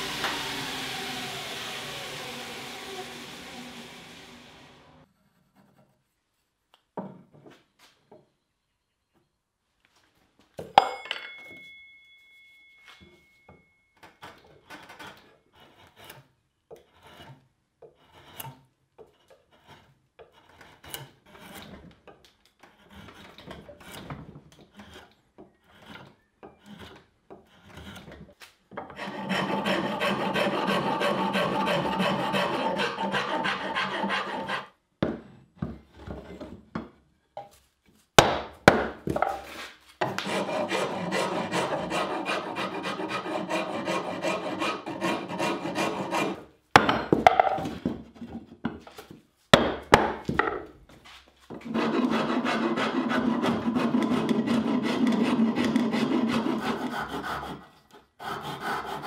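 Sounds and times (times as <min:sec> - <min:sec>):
rasp scraping wood: 0:14.7 - 0:21.9, 0:22.6 - 0:28.3, 0:28.9 - 0:34.8, 0:39.3 - 0:46.4, 0:51.5 - 0:59.0
drawknife shaving wood: 0:14.9 - 0:21.8, 0:29.0 - 0:34.7.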